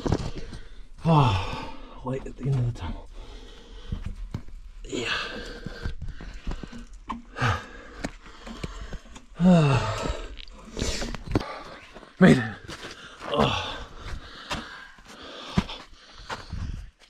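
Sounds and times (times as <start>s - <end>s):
person breathing heavily: 0.3s - 2.0s, 3.0s - 17.0s
hands and knees scraping rock: 3.6s - 16.8s
person groaning: 9.4s - 10.2s.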